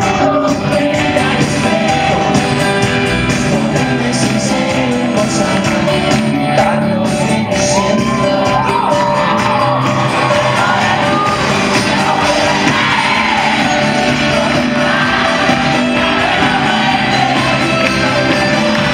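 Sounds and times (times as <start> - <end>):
crowd singing along: 0.0 - 18.9
live band music through speakers: 0.0 - 18.9
crowd shouting: 7.5 - 18.9.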